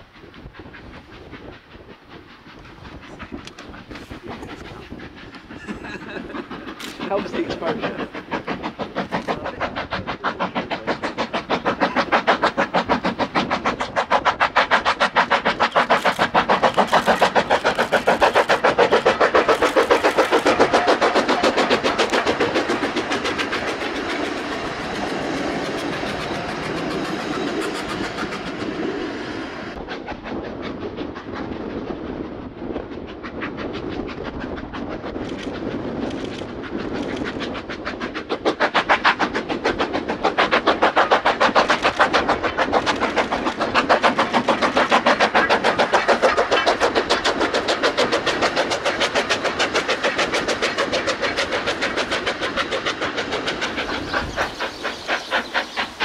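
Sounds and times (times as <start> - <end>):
steam locomotive chuffing: 0.0 - 56.0.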